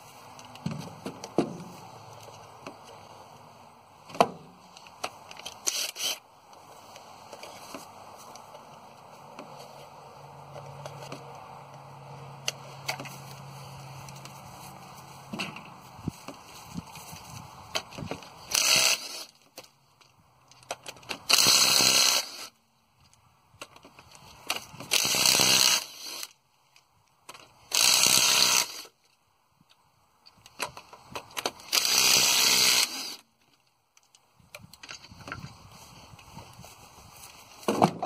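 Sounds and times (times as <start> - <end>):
impact wrench bursts: 5.6 - 6.2, 18.4 - 19.3, 21.2 - 22.5, 24.8 - 26.3, 27.7 - 28.9, 31.4 - 33.2.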